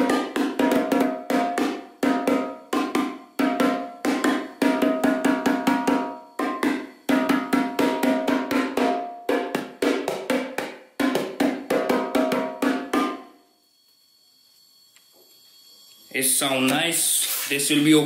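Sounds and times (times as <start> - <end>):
bongos played by hand: 0.0 - 13.3.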